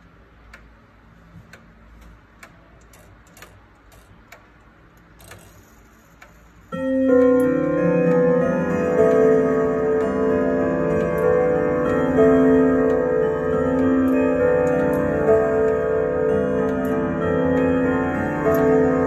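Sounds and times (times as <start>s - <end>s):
clock ticking: 0.0s - 19.0s
clock chime melody: 6.7s - 19.0s.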